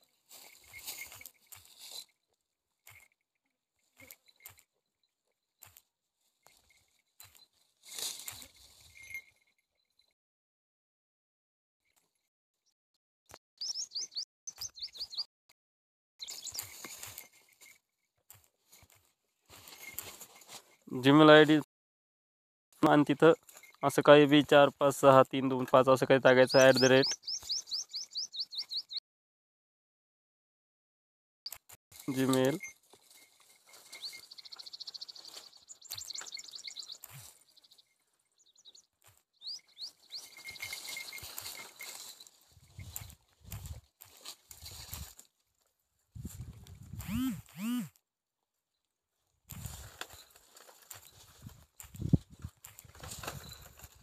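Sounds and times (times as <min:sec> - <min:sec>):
small bird chirping: 0:13.6 - 0:15.3, 0:16.2 - 0:17.0, 0:26.5 - 0:29.0, 0:32.4 - 0:43.2.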